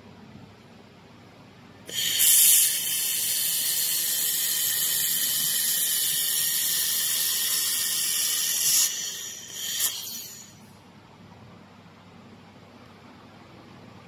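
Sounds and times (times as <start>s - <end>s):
laser welder hissing: 1.9s - 10.8s.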